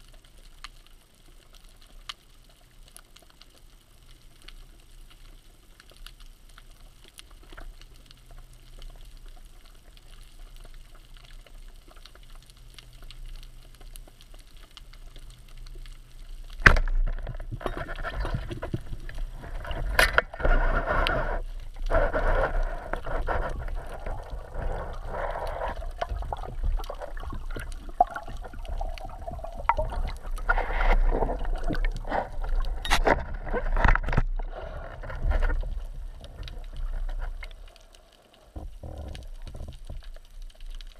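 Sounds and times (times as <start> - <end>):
faint underwater rumble: 0.0 - 40.9
small underwater clicks: 0.0 - 40.9
rushing water and bubbling: 15.3 - 40.9.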